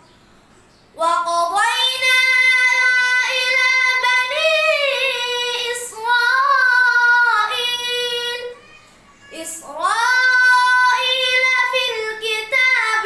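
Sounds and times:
boy reciting melodically: 0:01.0 - 0:13.0.

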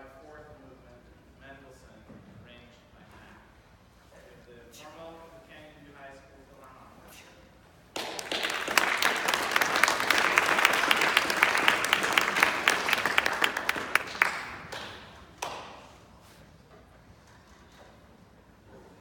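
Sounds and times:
audience applauding: 0:08.0 - 0:15.7.

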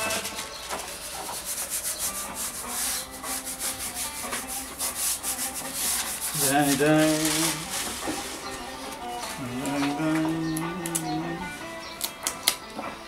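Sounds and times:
hands rubbing on paper: 0:00.0 - 0:10.1.

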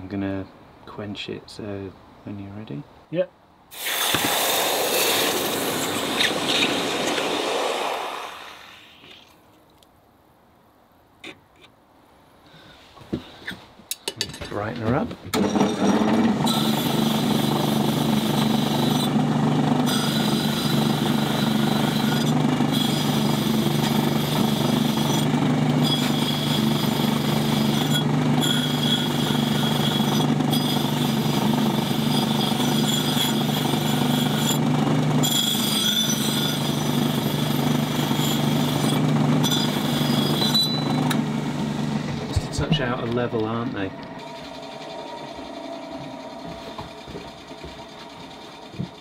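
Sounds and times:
bench grinder motor hum: 0:15.4 - 0:42.4, 0:43.2 - 0:49.0
grinding wheel hissing on steel: 0:16.5 - 0:42.2.

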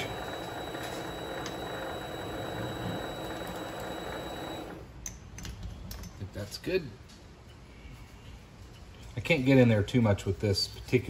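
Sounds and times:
lathe running with high whine: 0:00.0 - 0:04.8.

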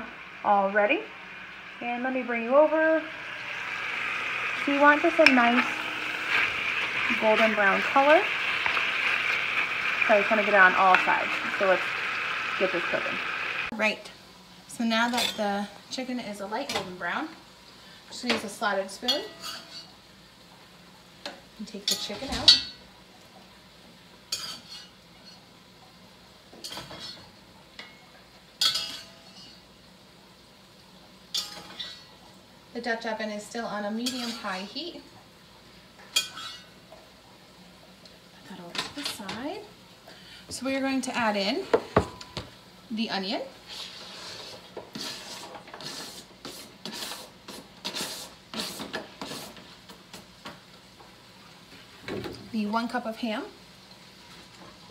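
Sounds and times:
spoon scraping cutting board: 0:05.1 - 0:09.2, 0:43.7 - 0:49.6
spoon clinking and scraping pot: 0:36.1 - 0:36.7.

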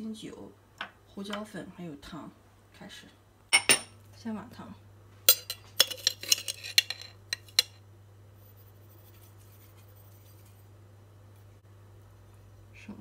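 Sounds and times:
spoon clinking on glass: 0:05.3 - 0:07.8.

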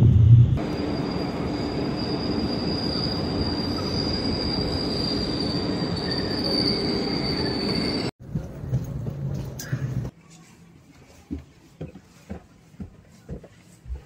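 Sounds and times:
rumble of rail cars: 0:00.0 - 0:14.0
train wheels squealing: 0:00.6 - 0:08.1.

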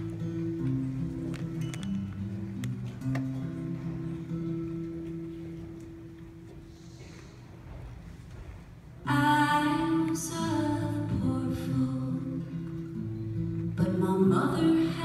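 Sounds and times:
acoustic guitar: 0:00.0 - 0:15.0
woman singing: 0:09.1 - 0:12.6, 0:13.8 - 0:15.0.

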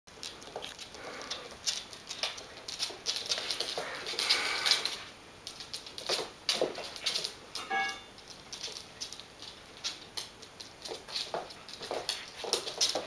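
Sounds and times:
dog claws clicking on wooden floor: 0:00.1 - 0:13.0.

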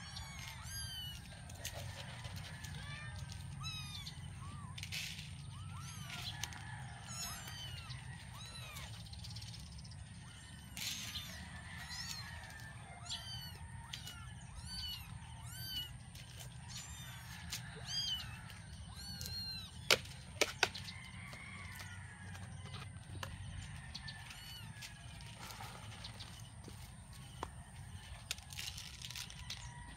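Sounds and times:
kittens mewing: 0:00.0 - 0:01.7, 0:12.9 - 0:19.9.

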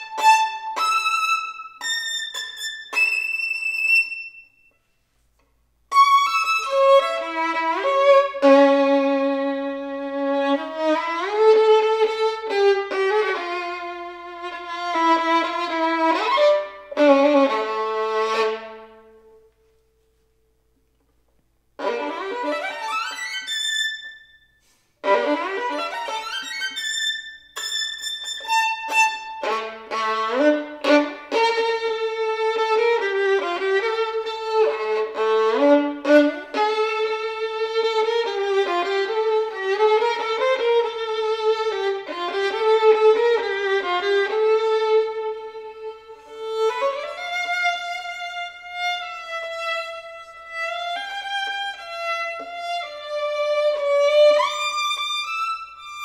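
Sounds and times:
solo violin playing: 0:00.0 - 0:04.7, 0:05.9 - 0:19.5, 0:21.8 - 0:56.0.

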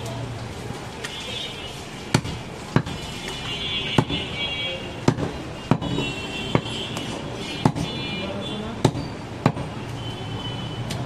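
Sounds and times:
knife chopping on wooden block: 0:07.6 - 0:07.9.

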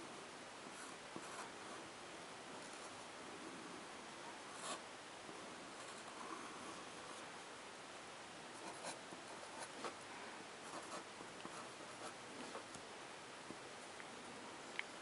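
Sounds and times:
steady background hiss: 0:00.0 - 0:15.0
pen scratching on paper: 0:00.7 - 0:01.6, 0:08.6 - 0:10.0, 0:10.6 - 0:12.6.

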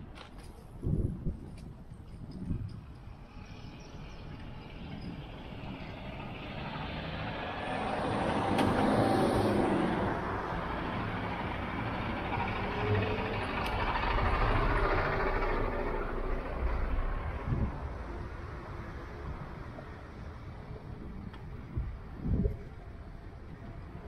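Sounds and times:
garbage truck engine driving past: 0:04.6 - 0:18.4.

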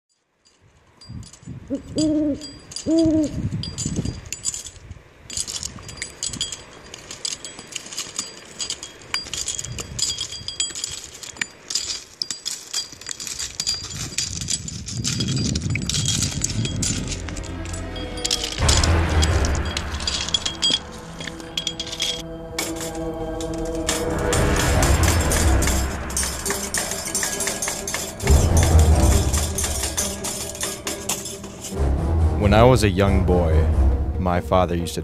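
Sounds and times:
faint high-pitched tinkling ticks: 0:00.1 - 0:31.8
owl hooting: 0:01.7 - 0:03.4
low rumble: 0:13.6 - 0:34.8.

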